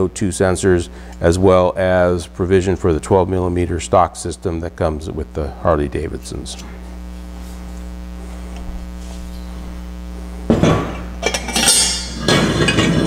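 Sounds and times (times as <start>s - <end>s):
low electrical hum: 0.0s - 13.0s
metal pipes clanking on a workbench: 10.6s - 13.0s.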